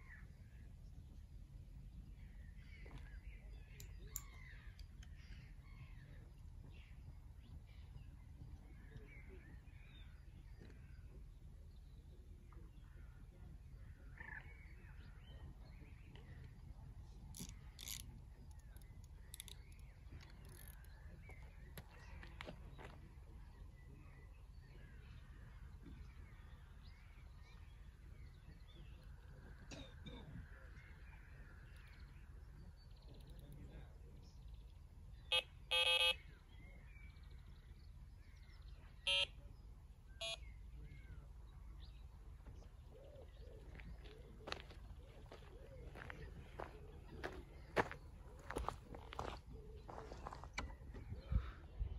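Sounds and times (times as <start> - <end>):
faint birdsong: 0.0 - 51.9
fishing tackle clicks: 17.4 - 20.9
faint bird calls: 35.2 - 37.5, 38.3 - 51.9
short pitched beep: 39.1 - 39.3.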